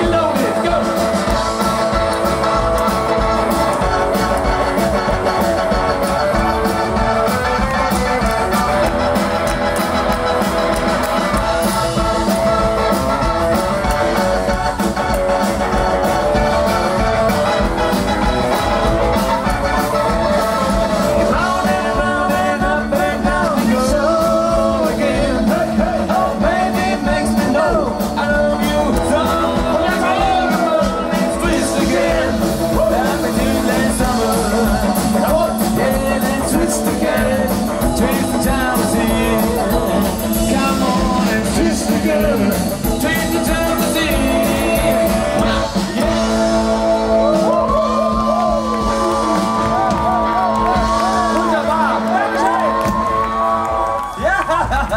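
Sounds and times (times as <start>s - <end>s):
rock and roll band playing: 0.0s - 54.9s
person singing: 19.2s - 53.5s.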